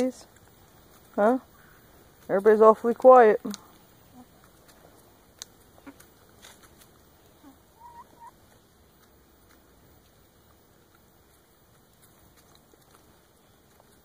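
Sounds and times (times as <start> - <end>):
hen clucking softly: 7.4 - 8.4.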